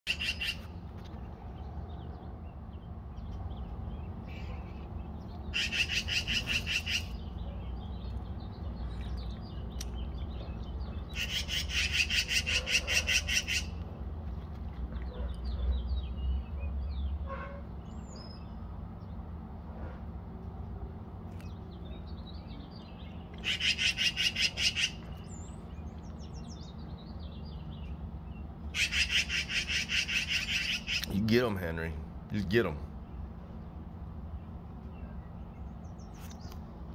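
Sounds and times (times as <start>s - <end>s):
magpie rattling chatter: 0.1s - 0.7s, 5.5s - 7.2s, 11.1s - 13.8s, 23.4s - 25.0s, 28.7s - 31.3s.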